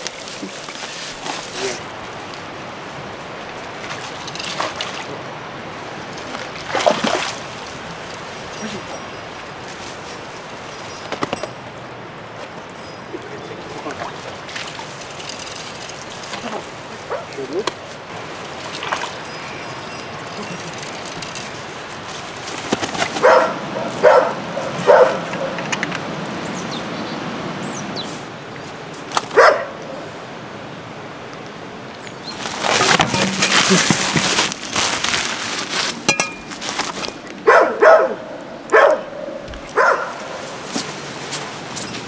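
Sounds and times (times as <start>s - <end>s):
dog barking: 23.2s - 25.6s, 29.4s - 29.8s, 37.4s - 40.4s.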